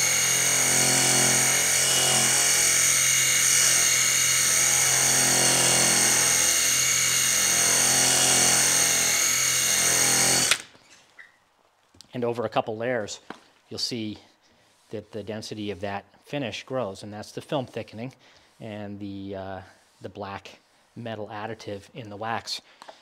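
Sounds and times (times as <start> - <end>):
cordless drill spinning roller: 0.0 - 10.9.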